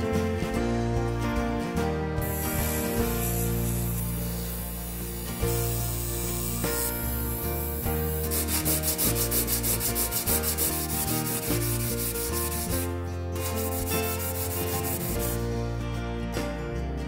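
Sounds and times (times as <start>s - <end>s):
metal scrubbing on abrasive pad: 2.3s - 15.4s.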